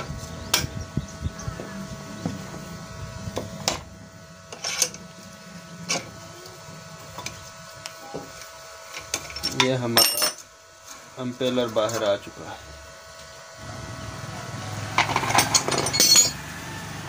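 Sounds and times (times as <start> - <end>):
wrench clinking on metal shaft: 15.1 - 16.4.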